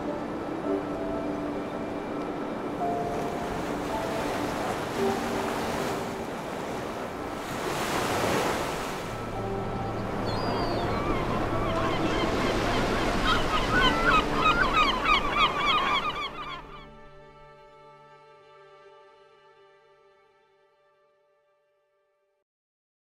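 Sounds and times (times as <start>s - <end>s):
ocean surf washing onto beach: 0.0s - 15.2s.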